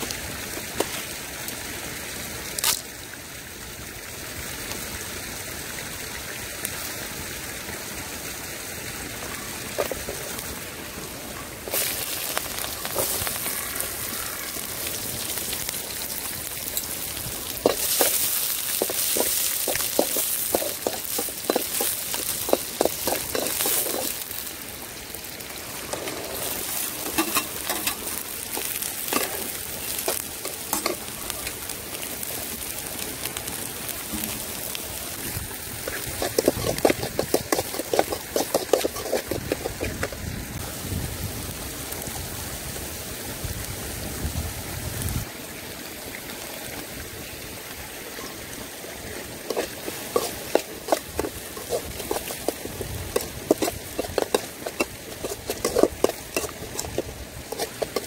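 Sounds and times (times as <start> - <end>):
food sizzling in hot oil: 4.0 - 42.8, 47.3 - 58.0
pan stirring ticks and scrapes: 11.6 - 32.0, 34.0 - 40.3, 49.1 - 58.0.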